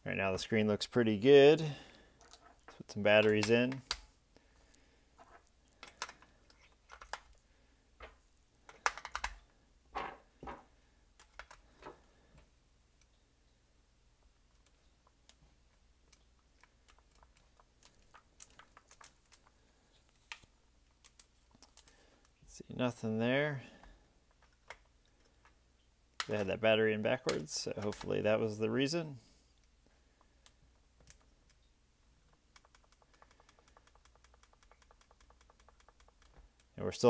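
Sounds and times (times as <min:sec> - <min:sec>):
calculator keys clicking: 0:32.5 - 0:36.7.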